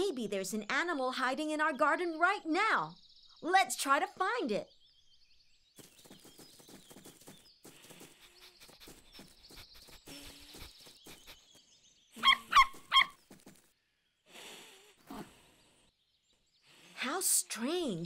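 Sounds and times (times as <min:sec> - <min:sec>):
cartoon puppy yapping: 0:12.2 - 0:13.2.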